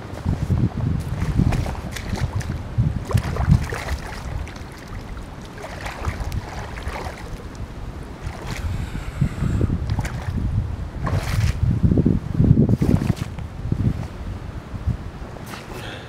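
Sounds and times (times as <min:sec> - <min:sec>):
wind on microphone: 0:00.0 - 0:16.0
water splashing: 0:01.0 - 0:11.7, 0:12.7 - 0:13.4
low rumble: 0:07.4 - 0:12.4.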